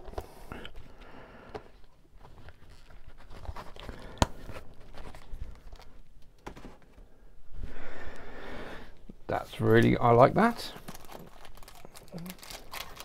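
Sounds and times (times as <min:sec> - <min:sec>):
packaging rustle: 0:01.8 - 0:06.7, 0:10.7 - 0:13.0.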